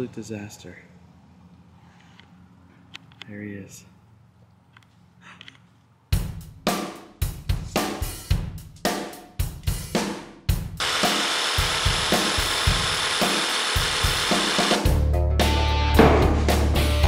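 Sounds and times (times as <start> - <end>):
drum kit beat: 6.2 - 17.0
jigsaw cutting wood: 10.8 - 14.8.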